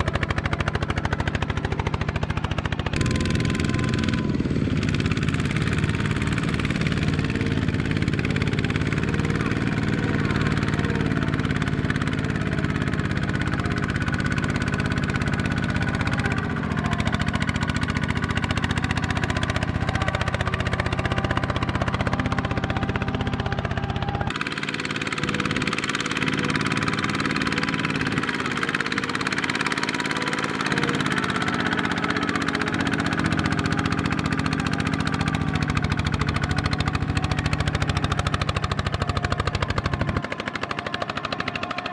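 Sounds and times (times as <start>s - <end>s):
walking tractor diesel engines: 0.0s - 41.9s.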